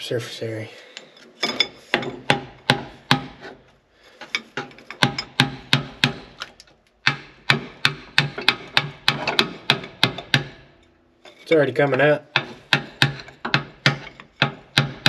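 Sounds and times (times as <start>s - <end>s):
hammer striking metal: 5.0s - 6.3s, 7.0s - 10.8s, 12.3s - 15.0s.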